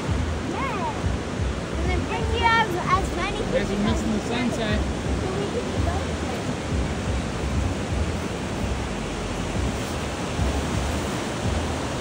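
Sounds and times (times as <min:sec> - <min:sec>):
ocean surf breaking on beach: 0:00.0 - 0:12.0.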